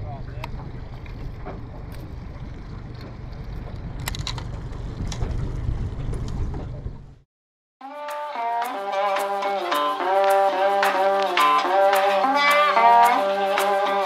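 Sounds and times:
water rushing along hull: 0:00.0 - 0:06.8
outboard engine drone: 0:00.0 - 0:07.2
hull knocking on waves: 0:00.4 - 0:07.0
wind on microphone: 0:00.6 - 0:07.1.

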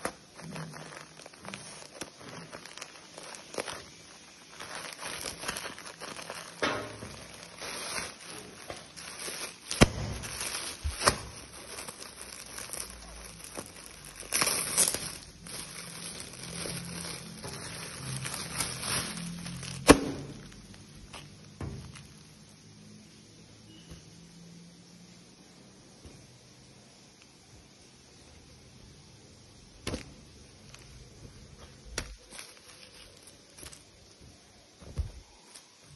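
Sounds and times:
plastic wrapping crinkling and tearing: 0:00.0 - 0:22.5, 0:29.8 - 0:35.9.

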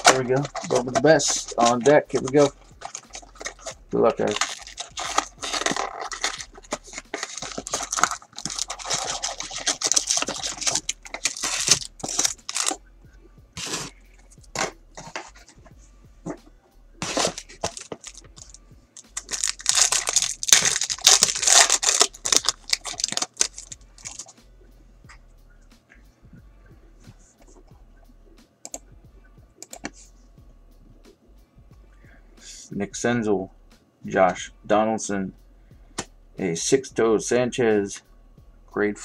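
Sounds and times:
foil packs rustling: 0:00.0 - 0:12.8, 0:17.0 - 0:24.3
foil wrapper tearing and crinkling: 0:00.0 - 0:12.8, 0:17.0 - 0:24.3.

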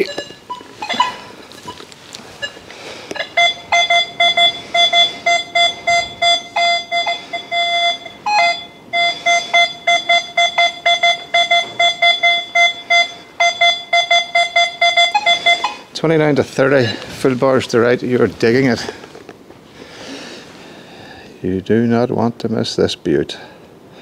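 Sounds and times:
metal detector beeping: 0:00.0 - 0:16.0, 0:16.6 - 0:18.5.

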